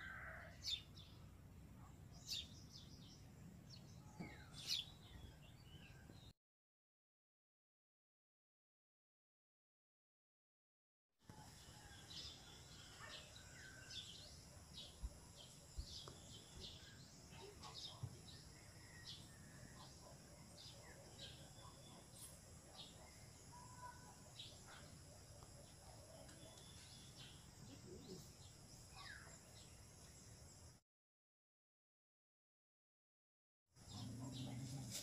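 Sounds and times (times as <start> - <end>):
small birds chirping: 1.8 - 6.3, 11.6 - 30.8, 33.8 - 35.0.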